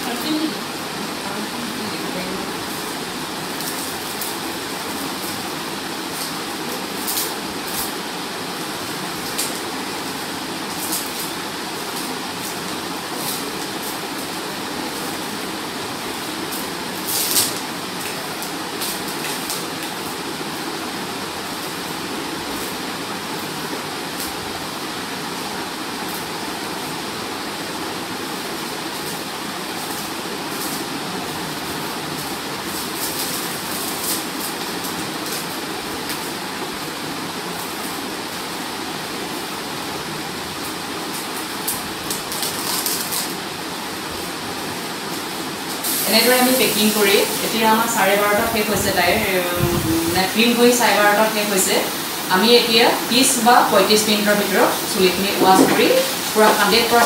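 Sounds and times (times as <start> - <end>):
plastic wrap crackling: 41.7 - 43.4.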